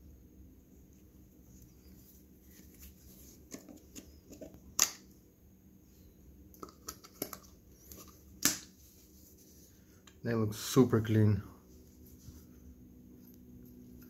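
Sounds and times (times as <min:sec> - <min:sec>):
plastic caps clicking and tapping: 0:06.6 - 0:08.6.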